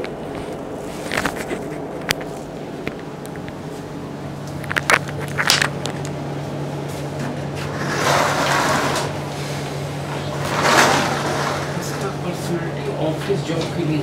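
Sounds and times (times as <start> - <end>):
footsteps in a room: 0.0 - 5.9
low hum: 0.0 - 14.0.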